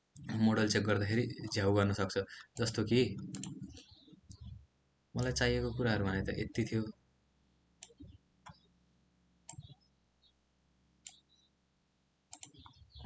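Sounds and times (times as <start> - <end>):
computer mouse clicks: 2.6 - 4.6, 7.8 - 8.6, 9.5 - 9.8, 11.0 - 11.3, 12.3 - 13.0.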